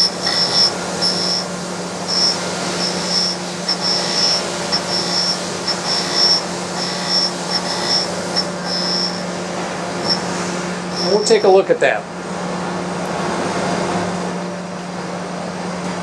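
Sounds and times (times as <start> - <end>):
high-pitched grinding hiss: 0.0 - 9.3, 10.0 - 10.3, 10.9 - 11.6
surface grinder humming: 0.0 - 9.3.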